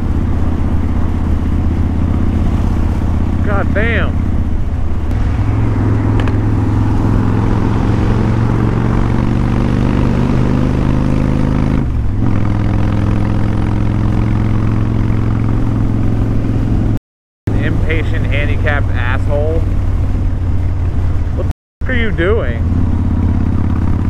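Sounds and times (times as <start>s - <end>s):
wind rushing: 0.0s - 17.0s
motorcycle engine running: 0.0s - 24.0s
road noise: 0.0s - 24.0s.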